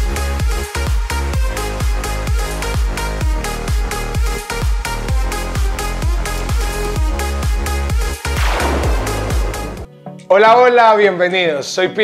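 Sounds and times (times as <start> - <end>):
electronic dance music: 8.3 - 9.9
cymbal-like wash: 8.4 - 9.9
deep kick drum: 8.4 - 9.9.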